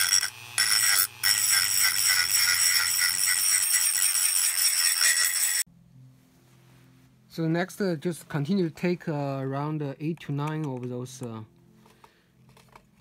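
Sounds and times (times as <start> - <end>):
rotary tool whining on metal: 0.0 - 5.7.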